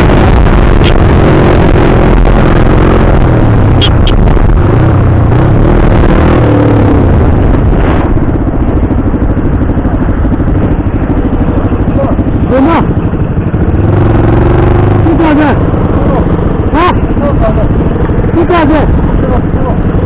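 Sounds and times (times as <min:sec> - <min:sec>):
wind noise on microphone: 0:00.0 - 0:08.8
motorcycle engine revving: 0:00.0 - 0:20.0.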